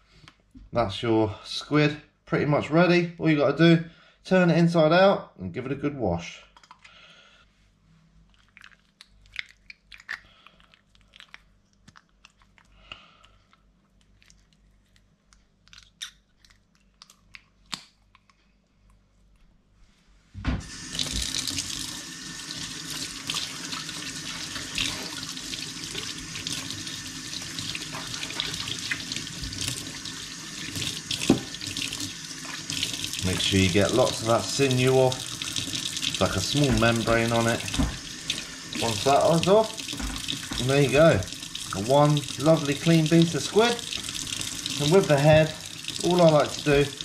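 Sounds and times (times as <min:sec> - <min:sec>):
tap water running into sink: 0:20.6 - 0:47.0.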